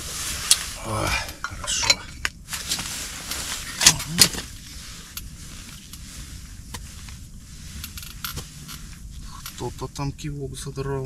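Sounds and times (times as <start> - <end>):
wind buffeting a tent: 0.0 - 11.0
sharp rustle: 2.5 - 10.1.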